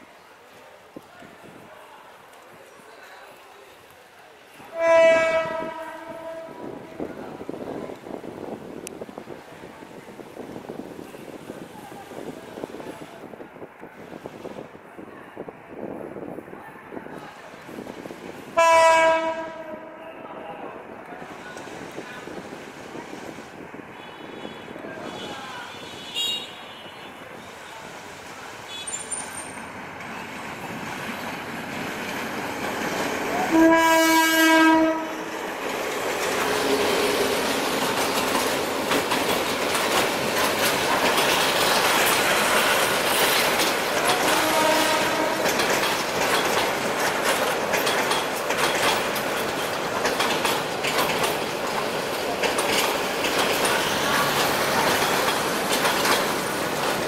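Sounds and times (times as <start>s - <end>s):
train horn blast: 4.7s - 7.0s, 18.6s - 20.2s, 33.5s - 35.4s, 44.1s - 45.6s
train wheels clattering: 28.8s - 57.0s.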